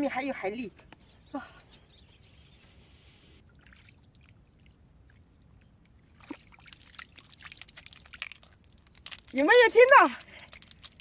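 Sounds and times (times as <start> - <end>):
mud and water sloshing: 3.4 - 11.0
snails rattling in a trap: 7.7 - 11.0.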